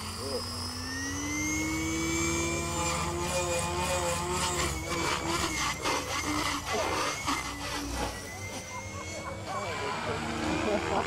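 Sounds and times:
helicopter rotor whine: 0.0s - 11.0s
rotor blade chop: 0.0s - 11.0s.

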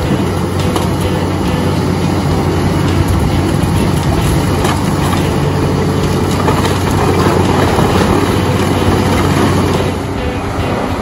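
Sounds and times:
diesel engine droning: 0.0s - 11.0s
wood crunching and clattering: 3.1s - 9.9s.

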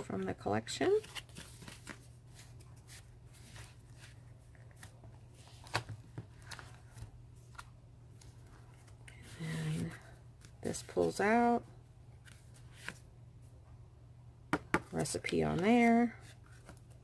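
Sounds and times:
paper pages rustling: 0.9s - 11.2s, 15.0s - 17.0s.

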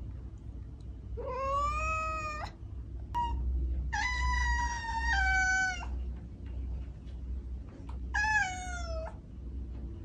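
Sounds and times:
cat meowing: 1.2s - 2.6s, 3.2s - 6.0s, 8.1s - 9.2s.

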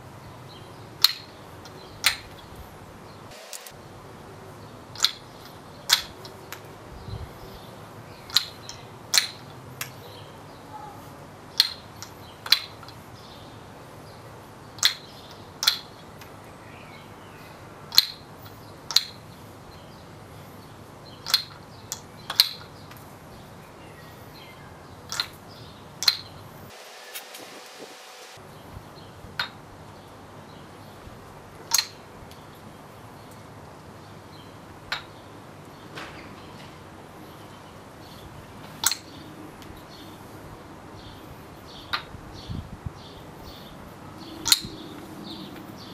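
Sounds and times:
wooden ball clacking on cups: 1.0s - 2.4s, 4.9s - 6.7s, 8.2s - 9.9s, 11.5s - 13.0s, 14.8s - 16.4s, 17.9s - 19.2s, 21.2s - 23.0s, 25.1s - 25.4s, 26.0s - 26.3s, 29.4s - 29.6s, 31.7s - 32.0s, 34.9s - 35.1s, 38.8s - 39.2s, 44.4s - 44.8s.

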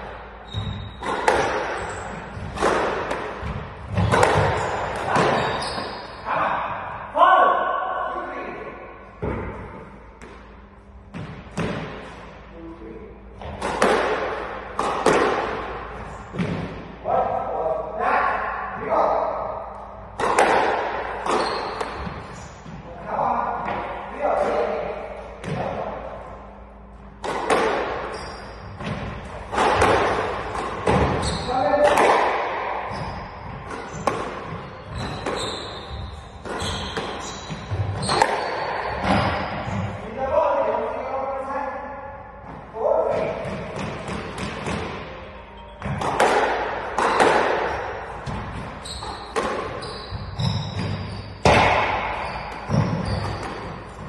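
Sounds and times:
squash ball hits echoing: 0.0s - 6.2s, 9.2s - 12.3s, 13.4s - 17.0s, 18.7s - 25.9s, 26.8s - 40.1s, 42.4s - 54.0s
shoes squeaking on court: 0.4s - 2.7s, 3.4s - 6.2s, 21.2s - 22.8s, 28.0s - 31.7s, 32.8s - 40.0s, 43.2s - 46.3s, 47.0s - 54.0s
squash ball cracking off walls: 1.0s - 1.8s, 28.8s - 32.7s.

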